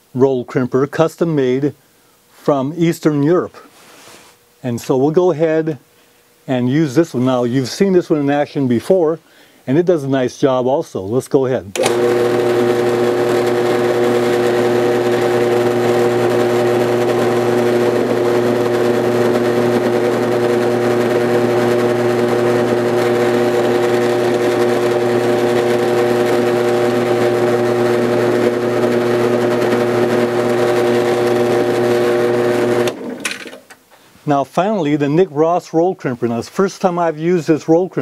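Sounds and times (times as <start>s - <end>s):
drill press motor humming: 11.7s - 33.6s.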